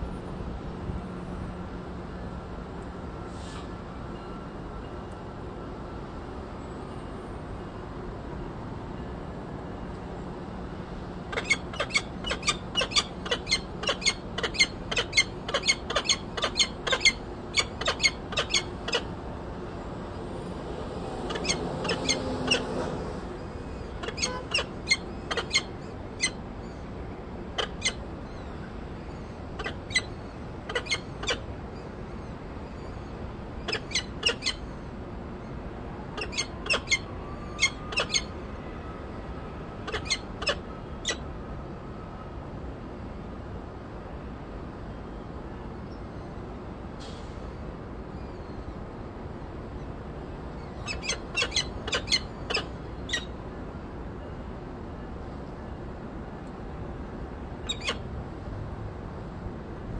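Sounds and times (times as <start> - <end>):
falcon chicks peeping: 11.3 - 19.1, 30.7 - 31.4.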